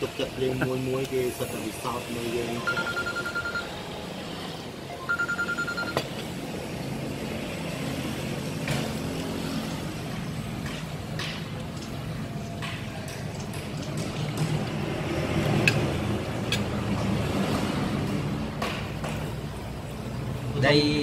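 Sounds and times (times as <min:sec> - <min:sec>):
road traffic rumble: 0:00.0 - 0:21.0
high-pitched electronic beeping: 0:02.6 - 0:03.8, 0:04.9 - 0:06.1.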